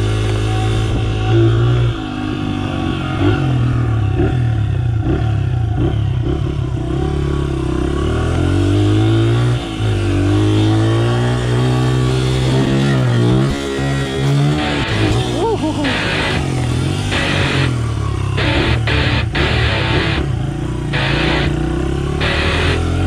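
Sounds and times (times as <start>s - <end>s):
dirt bike engine revving: 10.2s - 23.0s.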